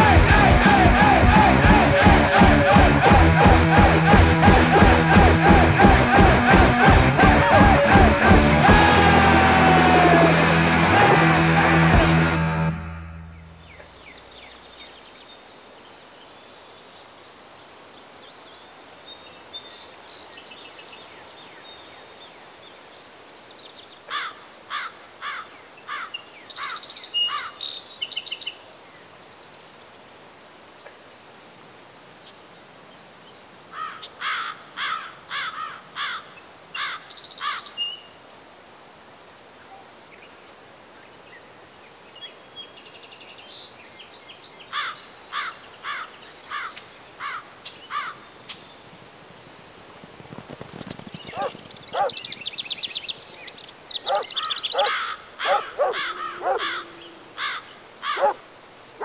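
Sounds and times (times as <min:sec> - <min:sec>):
insects droning: 0:13.5 - 0:59.0
bird calling sharp notes: 0:51.3 - 0:52.4, 0:54.0 - 0:58.4.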